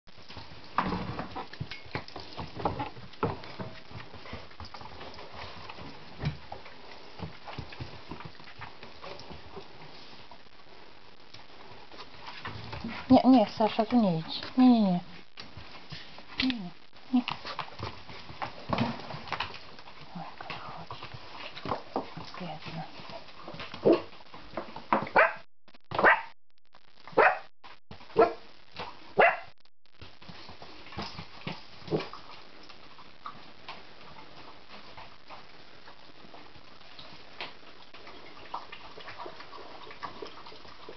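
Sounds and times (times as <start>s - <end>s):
dog barking: 23.8s - 24.1s, 25.1s - 25.4s, 26.0s - 26.3s, 27.1s - 27.5s, 28.1s - 28.5s, 29.2s - 29.5s.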